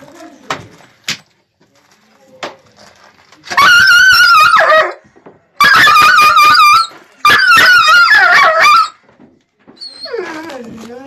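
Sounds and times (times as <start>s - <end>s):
small dog screaming in fear: 3.5s - 5.0s, 5.6s - 9.0s.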